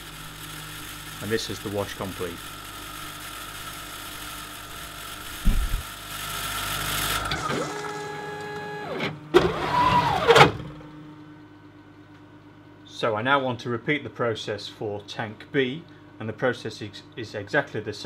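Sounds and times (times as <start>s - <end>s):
pump and machine noise: 0.0s - 10.7s
electric motors whining: 0.0s - 10.8s
machine thump: 5.4s - 5.9s.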